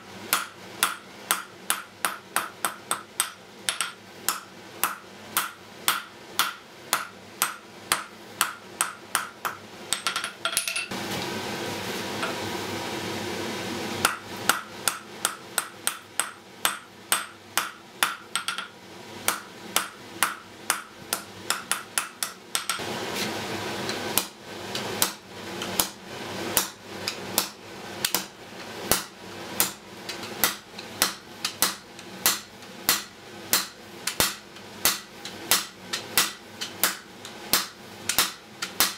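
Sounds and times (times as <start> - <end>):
hammer striking iron on anvil: 0.3 - 10.9, 14.0 - 22.8, 24.2 - 24.4, 26.6 - 28.3, 28.9 - 38.9.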